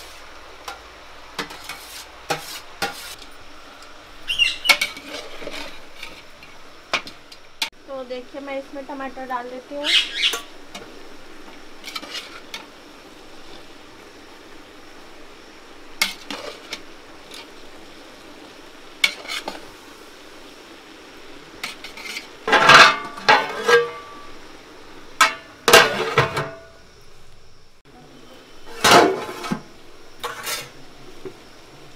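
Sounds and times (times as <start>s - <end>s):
metal spoon scraping in pot: 4.6s - 6.4s, 11.8s - 12.6s, 30.2s - 30.8s
metal lid clattering: 21.6s - 24.2s, 25.2s - 26.7s, 28.8s - 29.6s.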